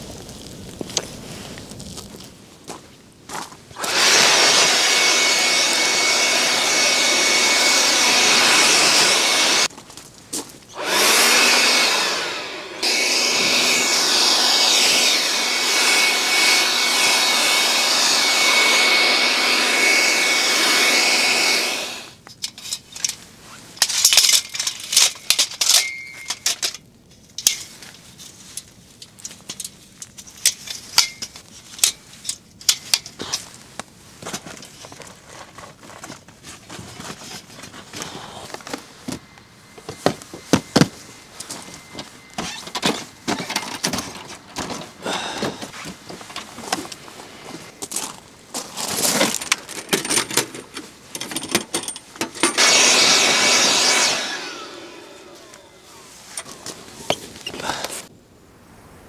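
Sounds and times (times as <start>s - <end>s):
small electric motor whirring: 3.8s - 9.7s, 10.8s - 22.2s, 52.5s - 56.4s.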